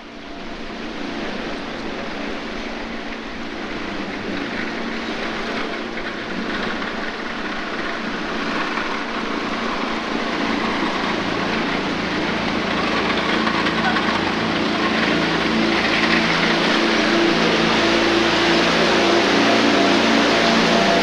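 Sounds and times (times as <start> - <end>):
water noise: 0.1 - 21.0
boat engine humming: 5.0 - 21.0.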